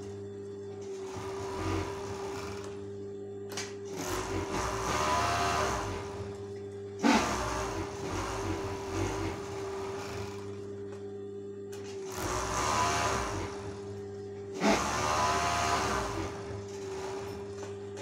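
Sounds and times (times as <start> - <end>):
overlock machine stitching: 0.8 - 2.8, 3.9 - 6.4, 7.0 - 10.6, 11.8 - 18.0.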